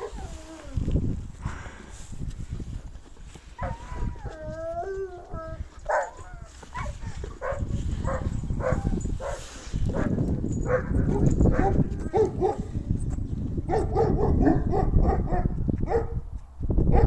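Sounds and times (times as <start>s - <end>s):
dogs barking: 0.0s - 0.2s, 3.6s - 4.2s, 5.9s - 12.7s, 13.7s - 16.2s
dogs howling: 0.0s - 0.8s, 3.6s - 9.4s.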